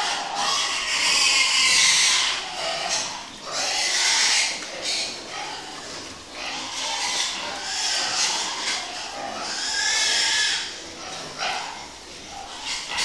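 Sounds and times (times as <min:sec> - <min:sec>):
pigs making harsh calls: 0:00.0 - 0:13.0.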